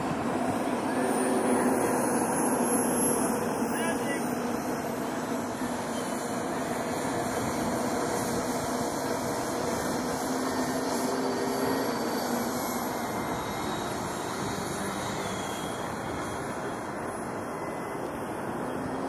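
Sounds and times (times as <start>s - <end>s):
model jet fan whine: 0.0s - 19.0s.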